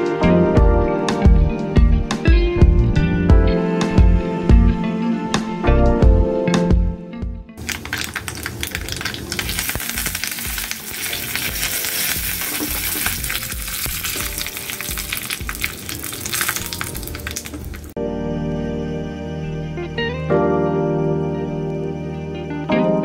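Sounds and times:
background music: 0:00.0 - 0:07.6, 0:09.0 - 0:23.0
spices sizzling in hot oil: 0:07.6 - 0:18.0.

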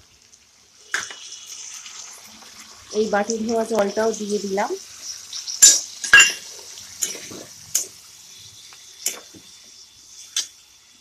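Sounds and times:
pan sizzling: 0:00.0 - 0:11.0
metal spatula scraping frying pan: 0:05.4 - 0:07.8.

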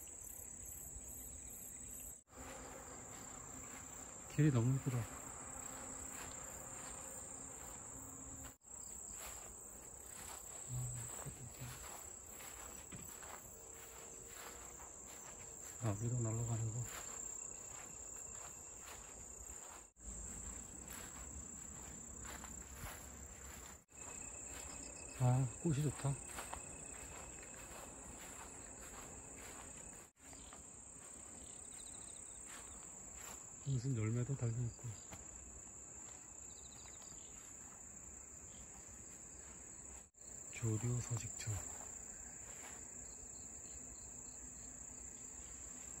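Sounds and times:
grass insects trilling: 0:00.0 - 0:46.0.

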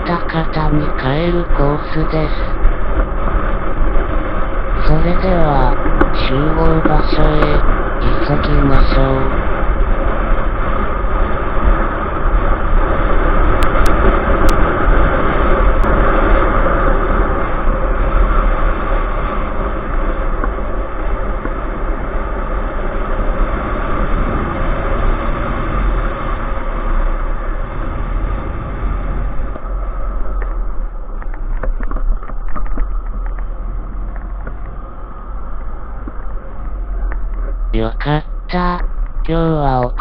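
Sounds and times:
motorcycle engine and wind noise: 0:02.6 - 0:04.8, 0:09.3 - 0:37.6.

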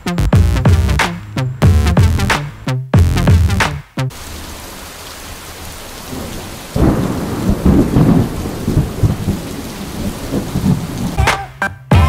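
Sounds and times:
steady rain falling: 0:04.1 - 0:11.6
thunder rumbling: 0:04.2 - 0:11.3.

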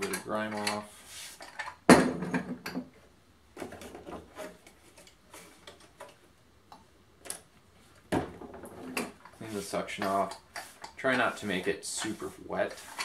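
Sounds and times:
paper towel wiping countertop: 0:09.4 - 0:13.0.

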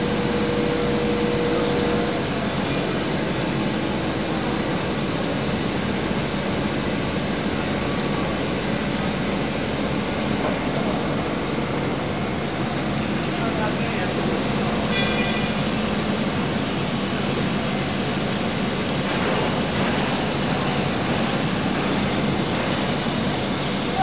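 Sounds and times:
cutting machine cutting steel: 0:13.2 - 0:24.0.

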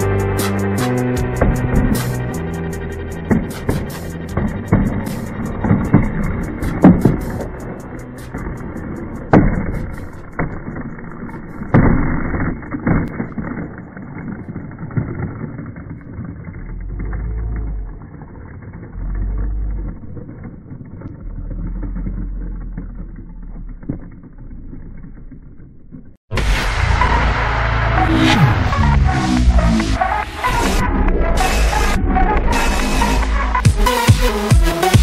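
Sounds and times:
low rumble: 0:00.0 - 0:33.8
outdoor noise: 0:00.0 - 0:35.0
skateboard clacking on asphalt: 0:00.4 - 0:19.0.

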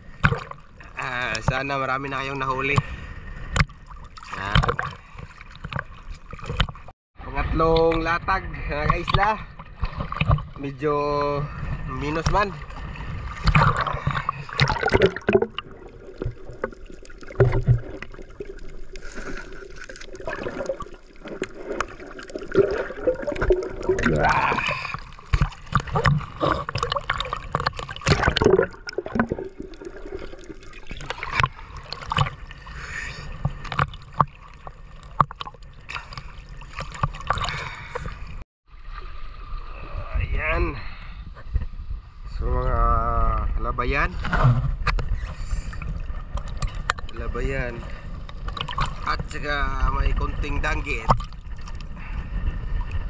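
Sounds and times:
seawater splashing: 0:08.8 - 0:39.2, 0:45.1 - 0:53.0.

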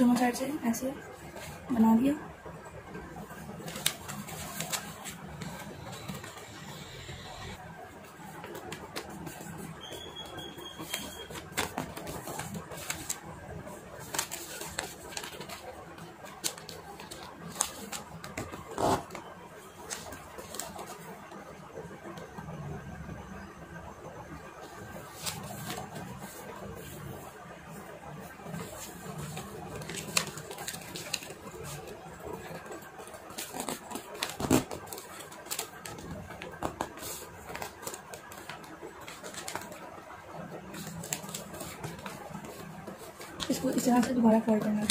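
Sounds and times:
paper rustling while folded: 0:03.2 - 0:06.7, 0:08.1 - 0:21.2, 0:24.7 - 0:44.9.

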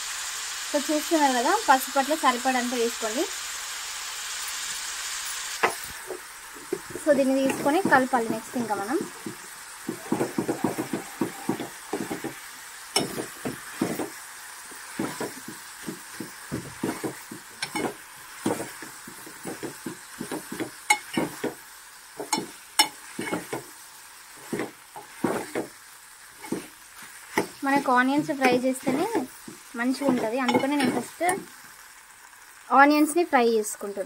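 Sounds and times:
onions sizzling in oil: 0:00.0 - 0:34.0
spoon scraping metal pot: 0:13.0 - 0:14.1, 0:14.9 - 0:21.5, 0:22.2 - 0:23.6.

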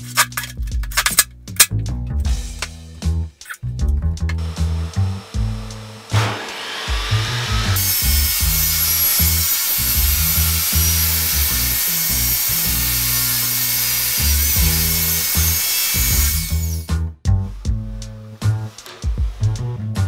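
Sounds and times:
background music: 0:00.0 - 0:20.0
table saw ripping wood: 0:04.3 - 0:17.0, 0:18.4 - 0:19.5.

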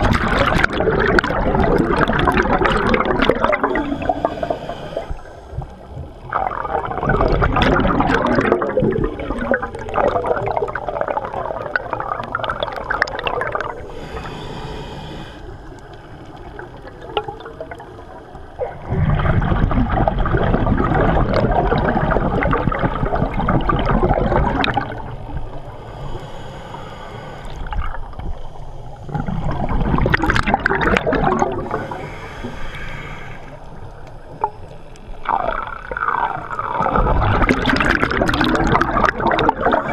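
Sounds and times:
bubbling underwater exhalations: 0:00.0 - 0:05.1, 0:06.2 - 0:13.8, 0:18.6 - 0:25.2, 0:29.1 - 0:32.2, 0:35.2 - 0:39.9
hissing regulator inhale: 0:03.6 - 0:05.9, 0:13.6 - 0:16.3, 0:25.6 - 0:29.7, 0:31.6 - 0:35.4.

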